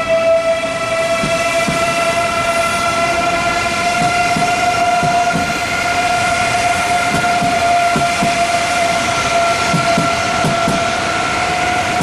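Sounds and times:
electric train motor whine: 0:00.0 - 0:12.0.

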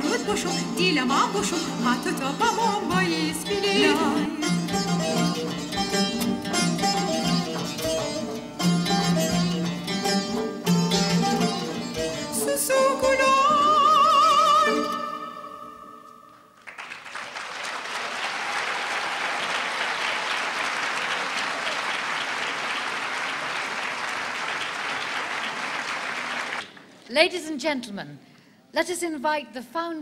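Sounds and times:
folk dance music plucked strings: 0:00.0 - 0:15.9
audience applause: 0:16.6 - 0:27.0.

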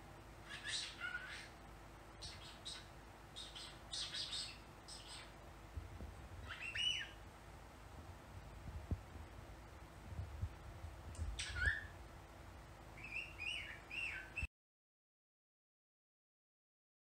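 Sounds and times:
cockatiel chirping and calling: 0:00.4 - 0:01.6, 0:02.2 - 0:05.4, 0:06.4 - 0:07.2, 0:11.4 - 0:12.0, 0:13.0 - 0:14.5.

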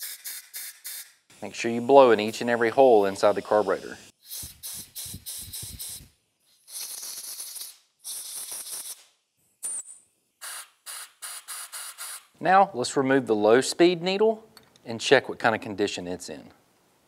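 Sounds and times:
compressed air blow gun puffs and hisses: 0:00.0 - 0:09.8, 0:10.4 - 0:12.3.

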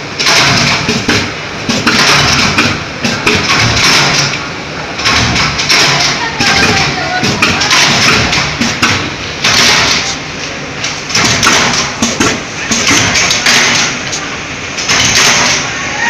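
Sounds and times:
factory rushing noise: 0:00.0 - 0:16.0
scattered knocks: 0:00.2 - 0:04.4, 0:05.0 - 0:10.2, 0:11.1 - 0:14.0.

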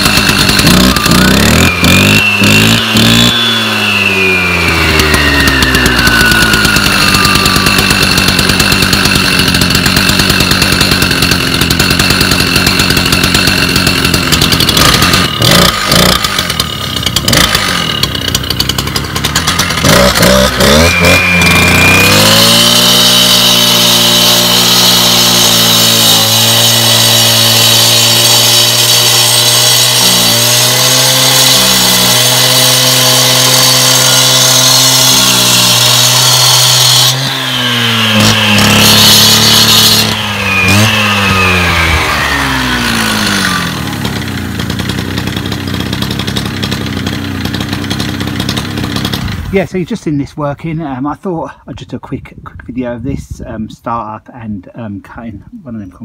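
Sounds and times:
cut-off saw engine: 0:00.0 - 0:50.9
saw disc cutting concrete: 0:00.0 - 0:51.0.

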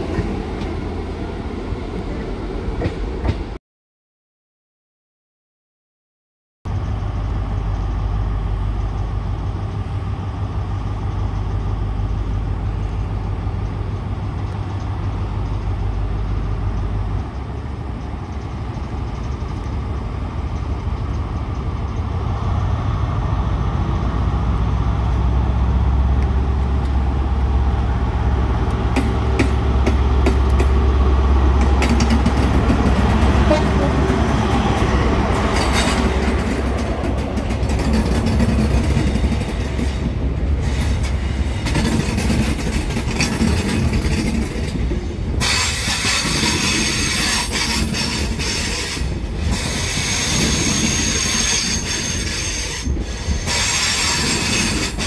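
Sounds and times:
train passing: 0:00.0 - 0:03.6, 0:06.7 - 0:55.0
diesel engine drone: 0:06.7 - 0:38.1.

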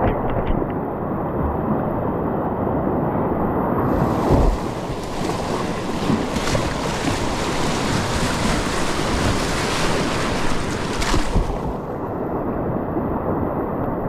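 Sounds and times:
whitewater rapids rushing: 0:03.8 - 0:11.8
water splashing over kayak bow: 0:03.8 - 0:12.2.

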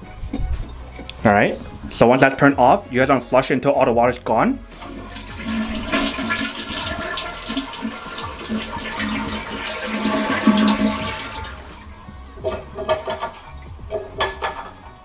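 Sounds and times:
toilet tank emptying: 0:04.8 - 0:15.0.

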